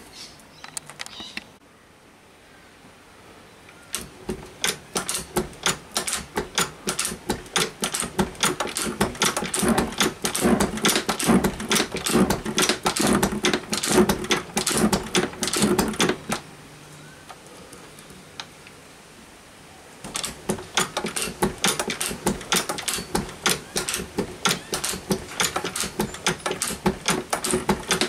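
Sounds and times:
metal shaper clicking: 0:03.9 - 0:16.4, 0:20.0 - 0:28.0.

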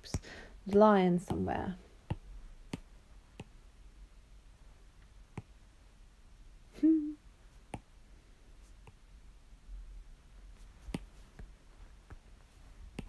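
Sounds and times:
person humming: 0:06.7 - 0:07.2.

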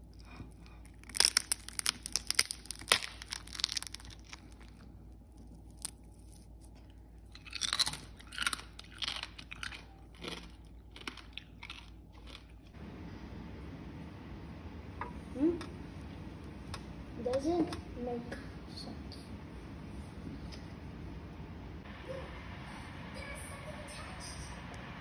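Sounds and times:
crispy skin crackling: 0:00.0 - 0:12.7.

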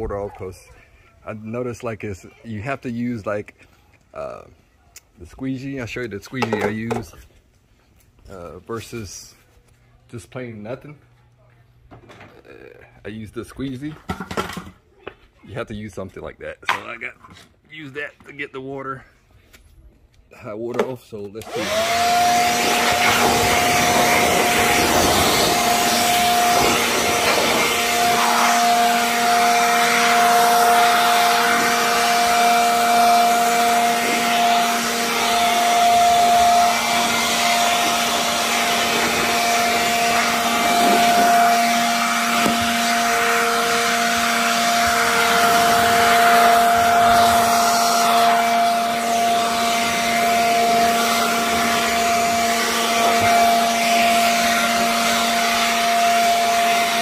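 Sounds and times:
electric leaf blower running: 0:21.4 - 0:57.0.

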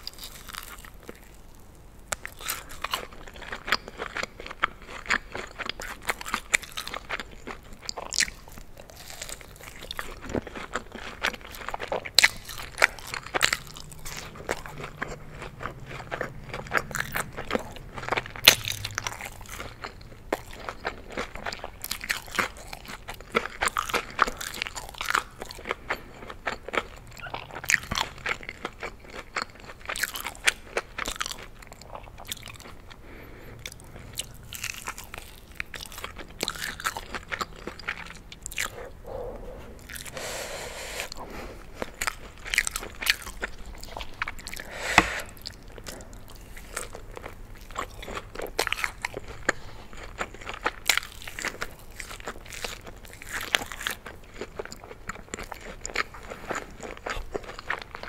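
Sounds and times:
crunchy chewing of chicken wings: 0:00.0 - 0:58.0
wet mouth sounds: 0:36.3 - 0:46.9.

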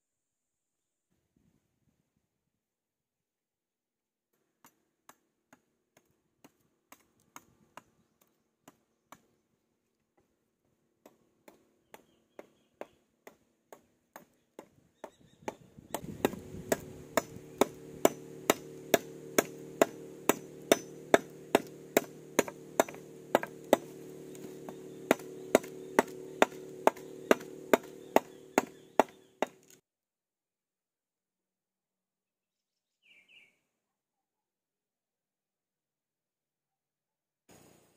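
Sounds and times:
machete chopping wood: 0:15.4 - 0:29.8
steady low hum: 0:15.6 - 0:29.8.

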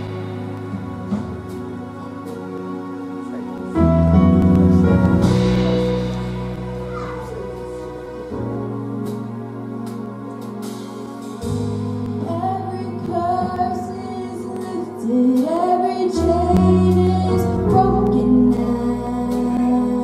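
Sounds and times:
held chords and bass notes: 0:00.0 - 0:20.0
girl singing into microphone: 0:12.2 - 0:20.0.

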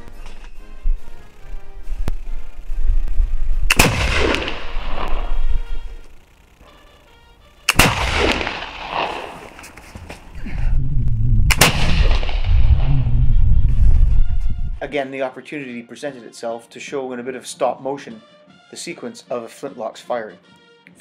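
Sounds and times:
rifle shots: 0:03.7 - 0:05.8, 0:07.7 - 0:09.6, 0:11.5 - 0:12.6.

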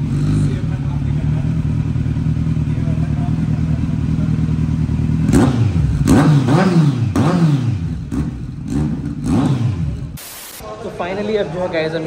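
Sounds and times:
motorcycle engine revving: 0:00.0 - 0:10.2.

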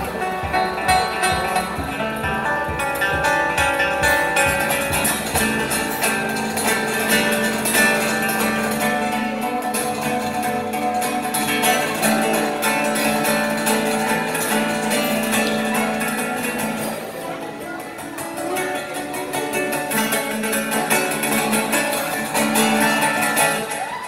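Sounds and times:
classical guitar playing: 0:00.0 - 0:24.0.

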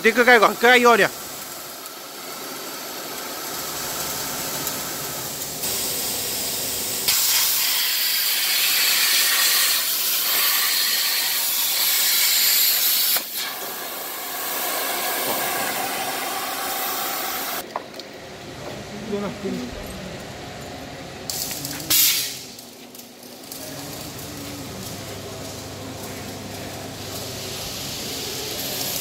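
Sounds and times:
plasma cutter hissing: 0:00.0 - 0:17.6, 0:21.3 - 0:22.6, 0:26.8 - 0:29.0.

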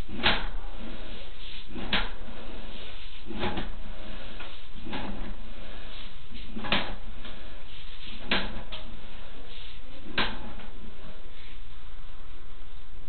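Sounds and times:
steady background noise: 0:00.0 - 0:13.0
cable scraping knocks: 0:08.2 - 0:08.9.

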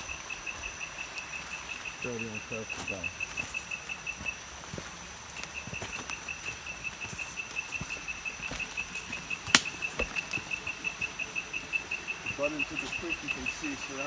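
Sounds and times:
footsteps on muddy trail: 0:00.0 - 0:14.0
insect pulsed chirping: 0:00.0 - 0:14.0
sharp snap: 0:09.5 - 0:09.7.

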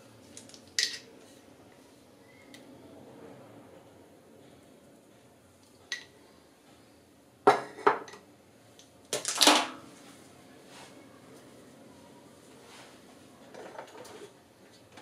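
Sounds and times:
plastic spoons clattering on tiles: 0:00.4 - 0:01.1, 0:09.1 - 0:09.8, 0:13.5 - 0:14.3.

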